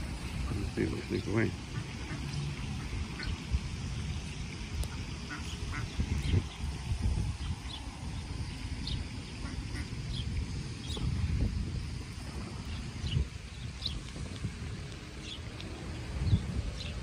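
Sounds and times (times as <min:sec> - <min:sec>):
ducks quacking: 0:00.4 - 0:03.4, 0:04.9 - 0:06.4, 0:09.4 - 0:09.9.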